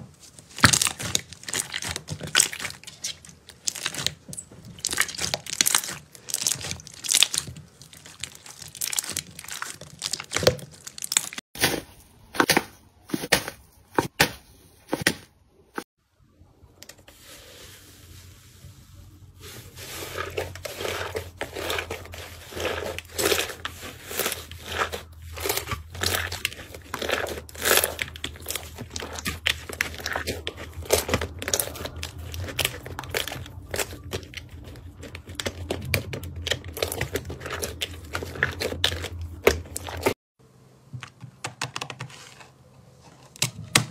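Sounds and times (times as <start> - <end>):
slime crackling and popping: 0.5 - 11.4, 20.2 - 40.2.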